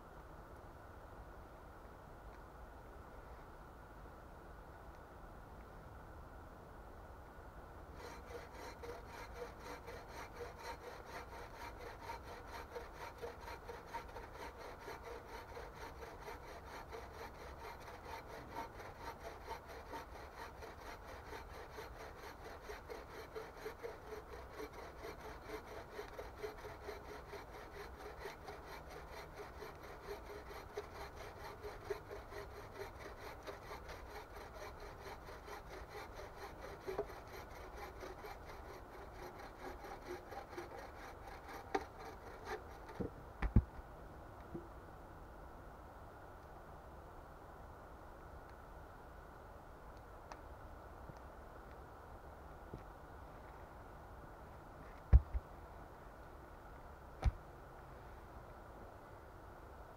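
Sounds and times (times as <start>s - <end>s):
bow saw cutting log: 7.9s - 43.2s.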